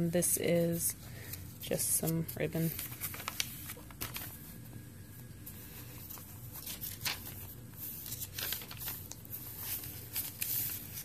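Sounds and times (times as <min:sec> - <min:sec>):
paper pages rustling: 0:01.2 - 0:11.0.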